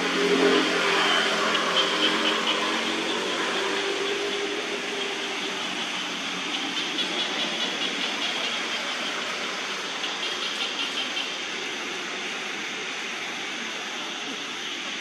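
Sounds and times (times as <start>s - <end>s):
hissing drone: 0.0s - 15.0s.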